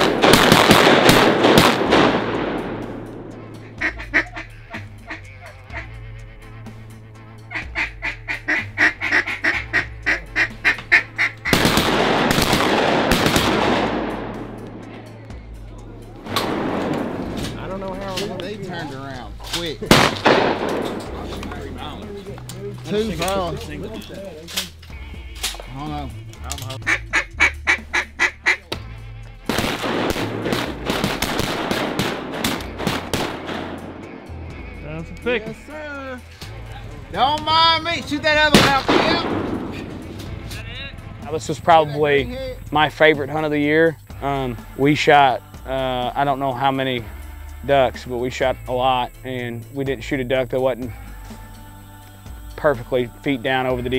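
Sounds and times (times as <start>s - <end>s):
waterfowl honking: 3.6s - 11.7s, 25.0s - 29.1s
duck call quacks: 3.7s - 11.6s, 25.0s - 29.2s.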